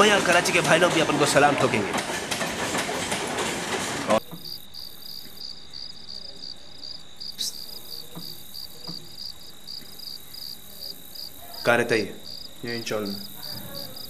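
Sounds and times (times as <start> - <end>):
train rumbling and rattling: 0.0 - 4.4
crickets chirping: 4.2 - 14.0.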